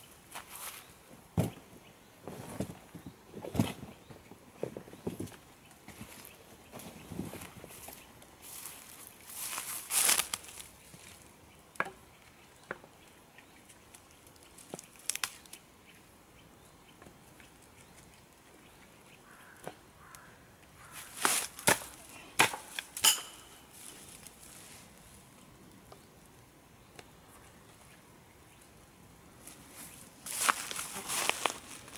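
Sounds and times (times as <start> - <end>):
rustling of twigs and grass: 2.2 - 11.4, 13.6 - 15.7, 19.2 - 26.1, 29.4 - 31.9.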